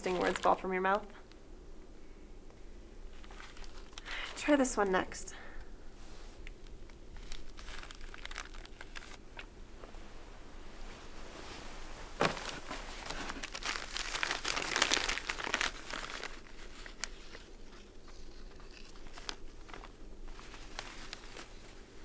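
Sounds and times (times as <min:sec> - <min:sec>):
wrapping paper crumpling: 0:00.0 - 0:00.7, 0:03.1 - 0:04.5, 0:07.1 - 0:09.5, 0:12.2 - 0:22.0.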